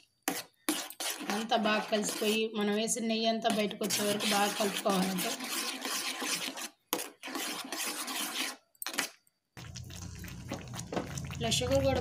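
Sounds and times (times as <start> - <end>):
spoon scraping thick paste in pan: 0.0 - 12.0.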